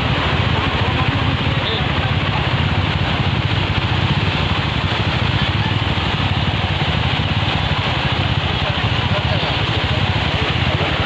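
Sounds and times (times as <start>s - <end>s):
floodwater rushing over road: 0.0s - 11.0s
motorcycle engine idling: 0.0s - 11.0s.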